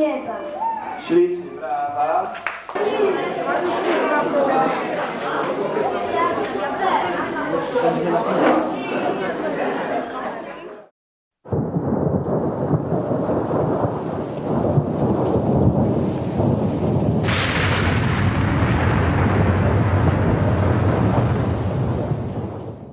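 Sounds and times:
thunder rumble: 11.5s - 22.9s
rain hiss: 12.3s - 22.9s.

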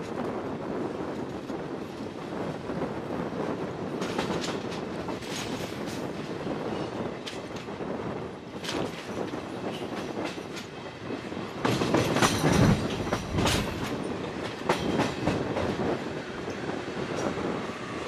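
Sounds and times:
train rumble: 0.0s - 18.0s
train wheels clattering over rail joints: 3.5s - 17.8s.

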